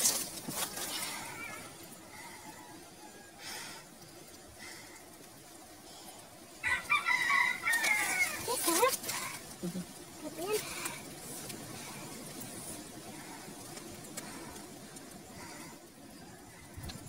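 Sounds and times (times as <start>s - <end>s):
rooster crowing: 1.1s - 3.6s, 6.6s - 8.5s.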